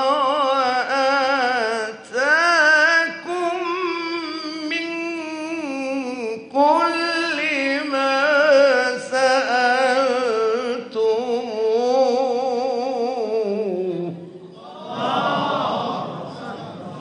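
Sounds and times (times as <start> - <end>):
man reciting melodically: 0.0 - 16.6.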